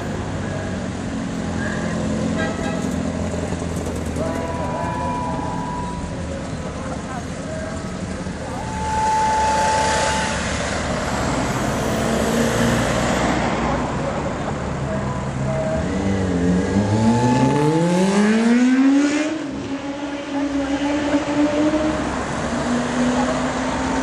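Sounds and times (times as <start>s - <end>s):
engine revving up: 16.2s - 23.6s.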